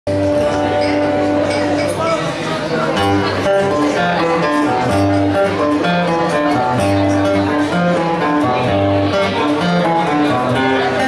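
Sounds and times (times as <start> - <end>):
fingerstyle acoustic guitar: 0.1 - 11.0.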